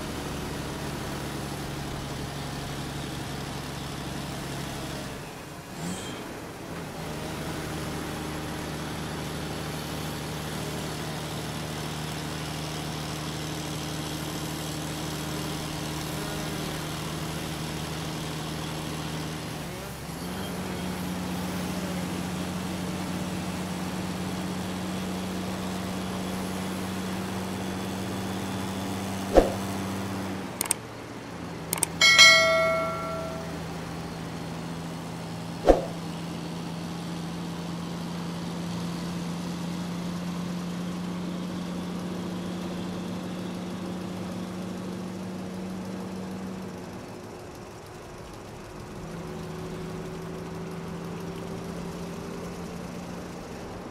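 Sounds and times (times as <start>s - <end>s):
sharp clicks: 30.6s - 30.8s, 31.8s - 32.0s
ringing bell-like chime: 31.8s - 33.8s.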